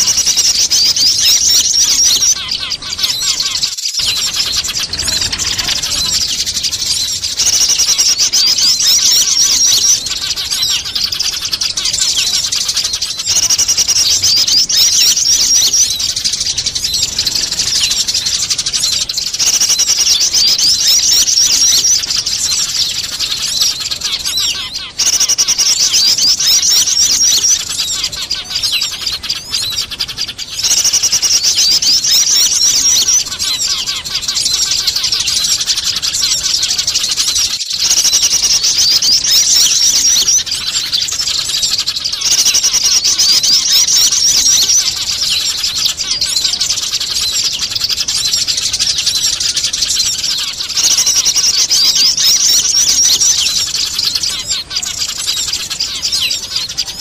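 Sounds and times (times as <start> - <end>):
small birds chattering: 0.0 - 57.0
sparrows squabbling: 0.0 - 57.0.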